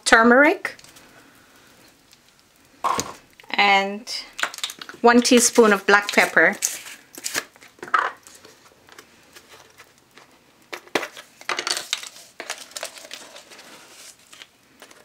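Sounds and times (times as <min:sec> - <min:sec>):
spice jar and spoon rustling: 0:04.3 - 0:08.7, 0:09.3 - 0:15.0.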